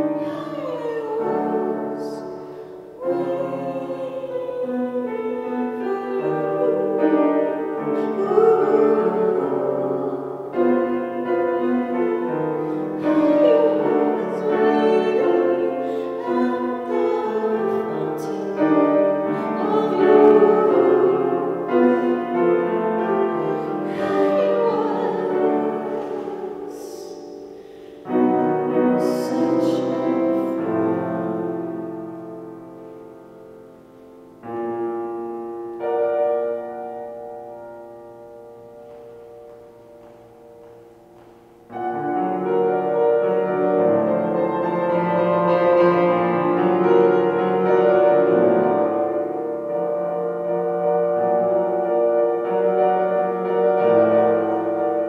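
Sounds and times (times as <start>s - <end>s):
woman singing: 0.0s - 2.4s, 3.0s - 31.5s
grand piano accompaniment: 0.0s - 55.0s.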